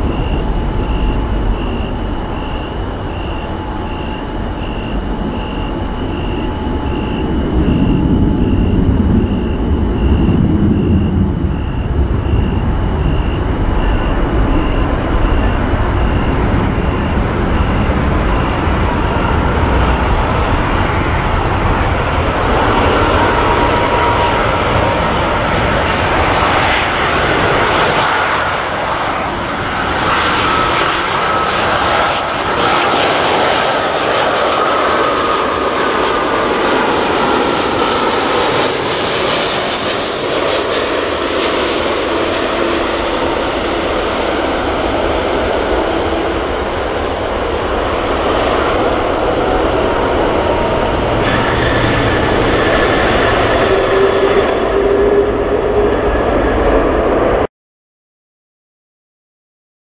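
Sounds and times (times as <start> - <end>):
jet aircraft passing overhead: 0.0 - 57.5
whining tone sliding down: 43.3 - 57.0.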